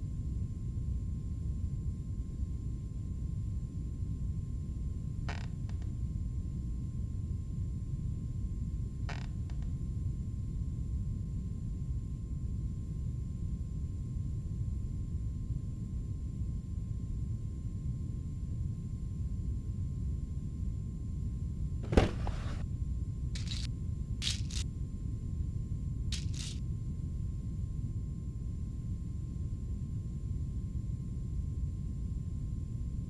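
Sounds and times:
faint thin hum: 21.8s - 22.7s
cabinet door click: 21.9s - 22.6s.

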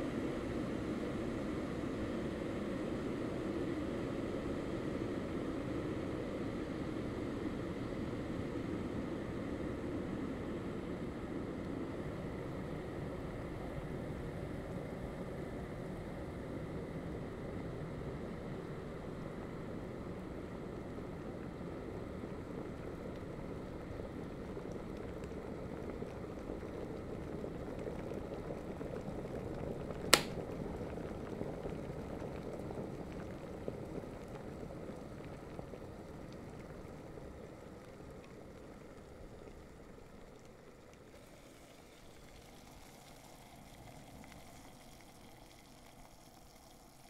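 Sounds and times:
water boiling in kettle: 0.0s - 47.0s
kettle switch click: 30.1s - 30.4s.

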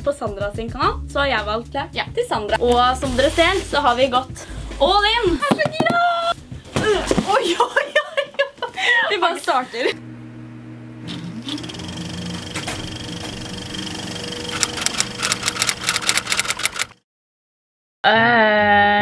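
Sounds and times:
woman speaking: 0.0s - 7.9s, 8.8s - 10.0s.

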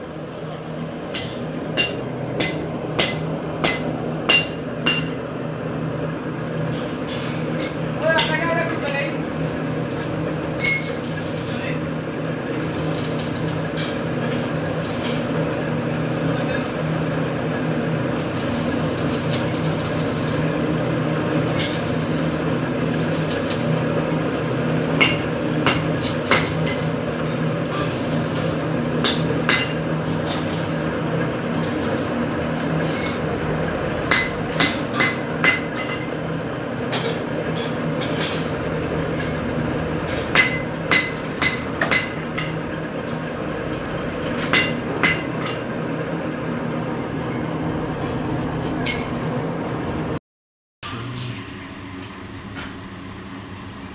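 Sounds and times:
workshop machinery hum: 0.0s - 50.2s, 50.8s - 53.9s
metal tools clinking on pulleys: 10.6s - 11.6s, 31.6s - 33.4s.

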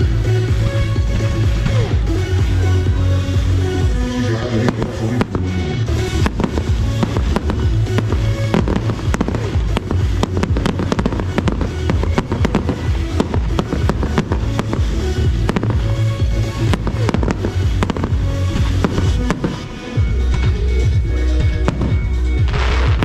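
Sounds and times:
fireworks bangs and crackles: 0.0s - 23.0s
loud music with bass beat: 0.0s - 23.0s.

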